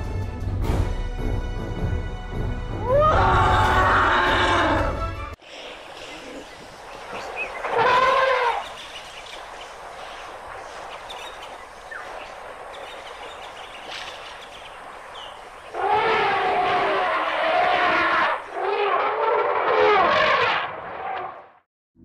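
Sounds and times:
elephant trumpeting: 2.8s - 5.0s, 7.6s - 8.8s, 15.7s - 21.4s.

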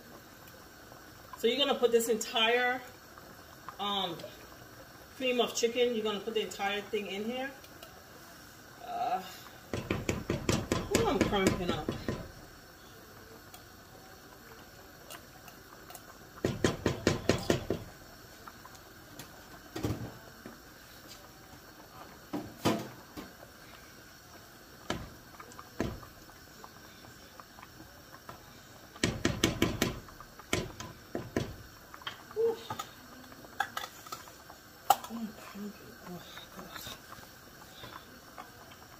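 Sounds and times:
can tapping against cooking pot: 9.7s - 12.5s, 16.4s - 18.0s, 24.8s - 26.3s, 29.0s - 32.9s.

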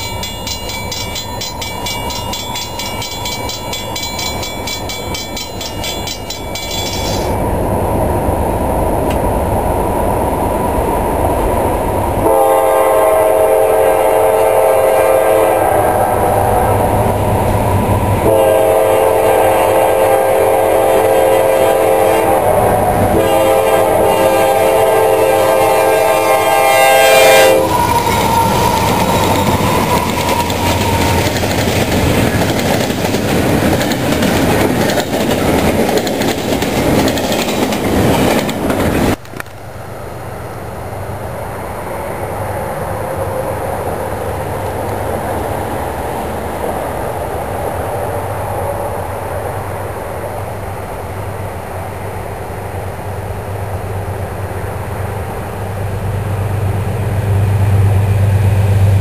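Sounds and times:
train wheels rumbling on rail: 0.0s - 59.0s
locomotive air horn blasts: 12.2s - 16.3s, 18.2s - 30.3s.

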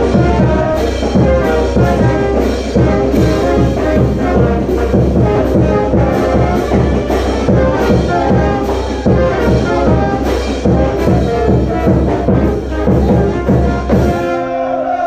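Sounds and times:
music with brass and driving beat: 0.0s - 14.8s.

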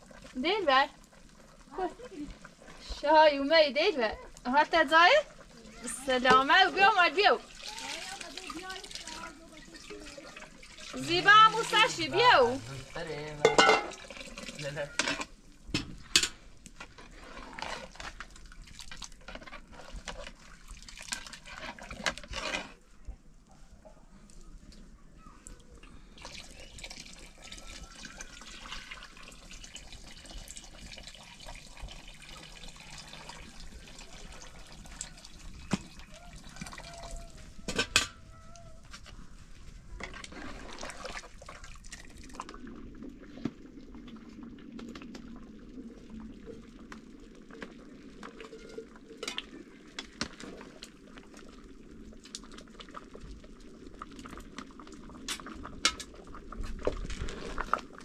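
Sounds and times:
liquid being poured: 5.1s - 22.8s, 25.4s - 38.5s, 39.6s - 58.0s
dishes clinking: 13.4s - 14.0s.

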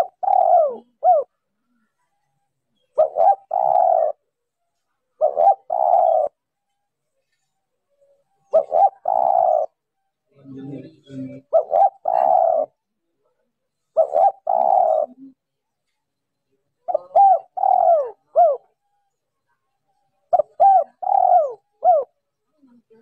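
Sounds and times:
dove cooing: 0.0s - 4.4s, 5.2s - 6.4s, 8.0s - 9.9s, 10.5s - 12.9s, 13.8s - 15.5s, 16.8s - 19.0s, 20.2s - 22.9s.

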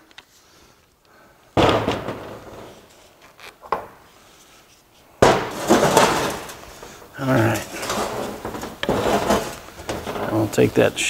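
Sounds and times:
metal tools clattering: 5.5s - 10.6s.

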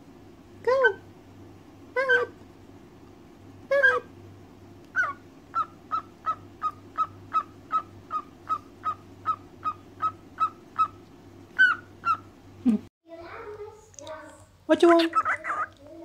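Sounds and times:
cockatiel chirping: 4.9s - 12.3s, 15.0s - 15.8s.

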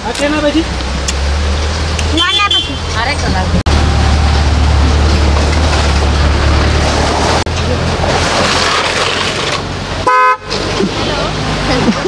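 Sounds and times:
vehicle engine rumbling: 0.0s - 12.0s
vehicle horn honk: 2.2s - 2.9s, 10.0s - 10.5s.

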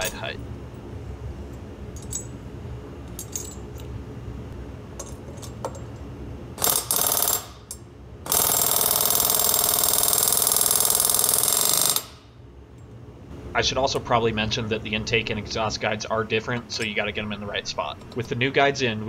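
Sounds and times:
pneumatic air hammer hammering: 6.6s - 12.4s.

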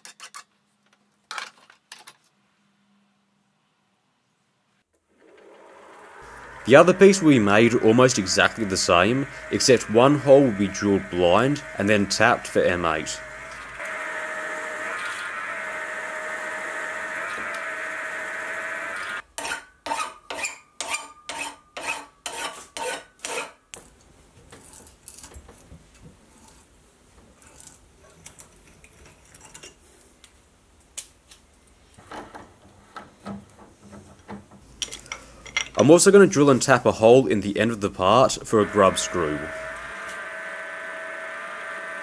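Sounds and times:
milling machine drilling steel: 5.9s - 19.2s, 38.0s - 42.0s.

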